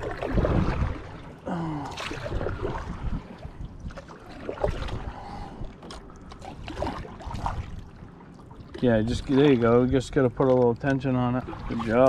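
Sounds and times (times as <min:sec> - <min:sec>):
wind buffeting microphone: 0:00.0 - 0:01.2, 0:02.1 - 0:05.7
paddle strokes in water: 0:00.0 - 0:12.0.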